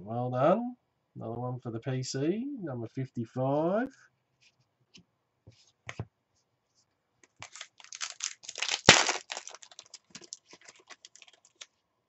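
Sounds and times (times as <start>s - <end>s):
foil wrapper tearing and crinkling: 7.4s - 11.7s.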